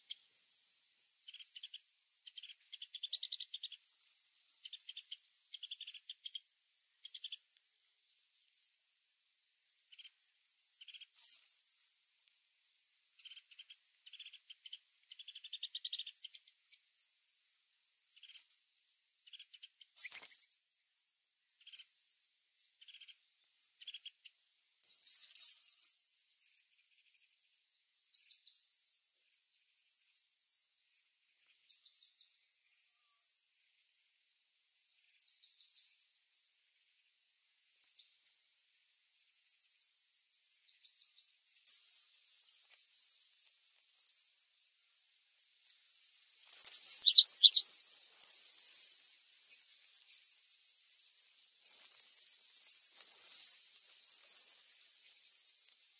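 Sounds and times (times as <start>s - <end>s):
nestlings begging with high chirps: 0.0s - 8.6s, 9.8s - 10.2s, 10.8s - 11.6s, 13.1s - 16.9s, 18.2s - 20.6s, 21.5s - 33.4s, 34.2s - 39.9s, 40.6s - 55.9s
steady hiss: 0.0s - 18.8s, 20.0s - 26.8s, 35.0s - 55.9s
sharp rustle: 46.3s - 50.2s.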